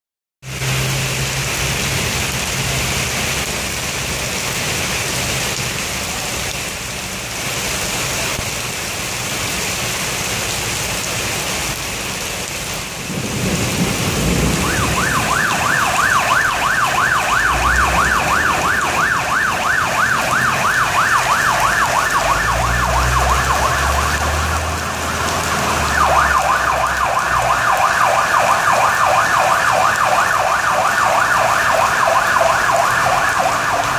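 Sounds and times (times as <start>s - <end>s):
heavy rain pouring: 0.4s - 33.9s
fire engine siren: 13.1s - 33.9s.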